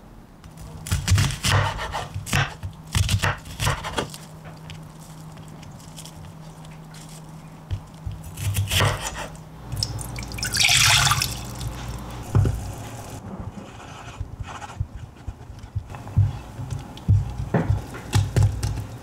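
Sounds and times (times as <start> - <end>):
water pouring into saucepan: 9.9 - 11.6.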